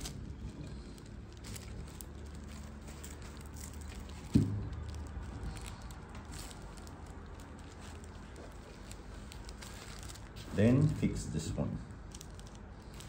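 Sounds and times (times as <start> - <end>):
metal arms and wire clicking: 0.0 - 10.5, 11.9 - 13.0
dull thump: 4.3 - 4.7.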